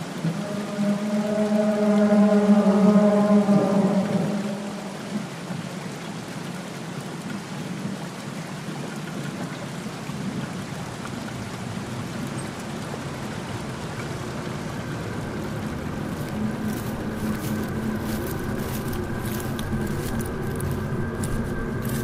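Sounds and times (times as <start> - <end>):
rain hissing: 0.0 - 5.9, 10.3 - 22.0.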